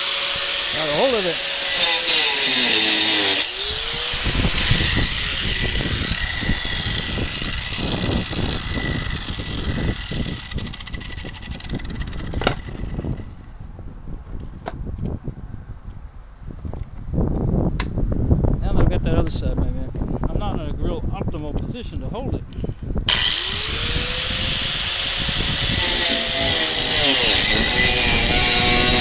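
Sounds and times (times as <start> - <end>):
angle grinder cutting steel: 0.0 - 13.5, 23.1 - 29.0.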